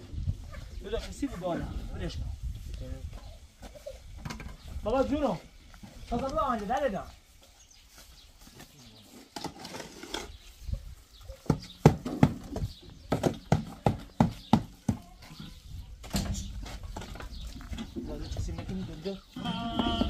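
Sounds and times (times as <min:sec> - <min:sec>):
shovel scraping metal wheelbarrow: 0:09.2 - 0:10.4.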